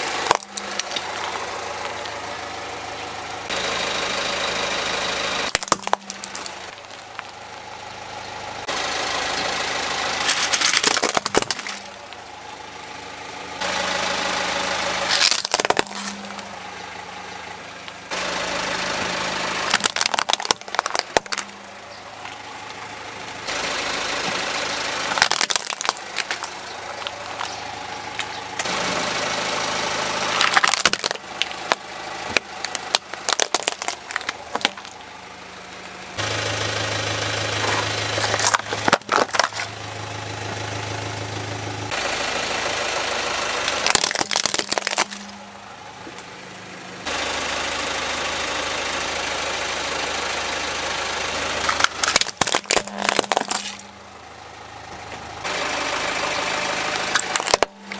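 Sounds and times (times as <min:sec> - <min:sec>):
plastic toys cracking under tyre: 0:00.0 - 0:01.3, 0:05.5 - 0:07.4, 0:10.2 - 0:12.2, 0:15.1 - 0:16.5, 0:19.7 - 0:21.6, 0:25.1 - 0:27.6, 0:30.2 - 0:35.0, 0:38.1 - 0:39.7, 0:43.7 - 0:45.4, 0:51.6 - 0:53.9, 0:57.1 - 0:57.9
car engine running: 0:00.0 - 0:57.9.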